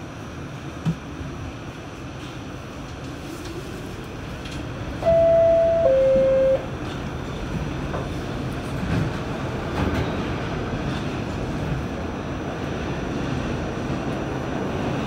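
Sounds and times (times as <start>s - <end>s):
train rumble: 0.0s - 15.0s
two-note falling door chime: 5.0s - 6.7s.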